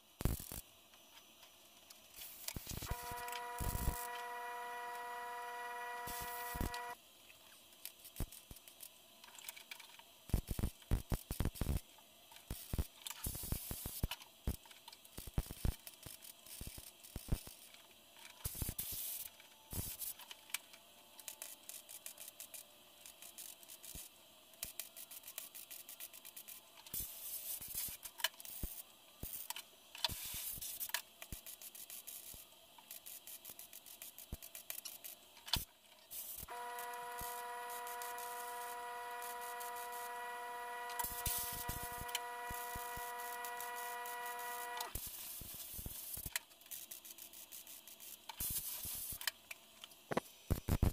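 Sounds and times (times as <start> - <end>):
crackling tack welding: 0.2 - 0.7, 2.0 - 7.0, 7.8 - 17.8, 18.4 - 20.6, 21.2 - 50.9
steady multi-tone hum: 2.3 - 7.1, 36.2 - 45.3.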